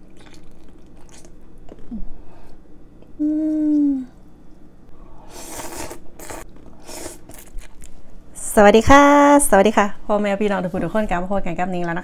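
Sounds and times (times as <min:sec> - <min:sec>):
person humming with mouth full: 0:03.1 - 0:04.2
person slurping noodles: 0:05.3 - 0:07.6.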